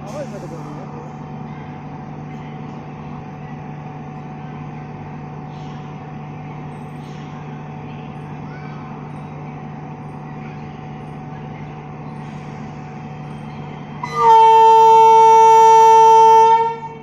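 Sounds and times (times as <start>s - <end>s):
locomotive horn blast: 14.0s - 17.0s.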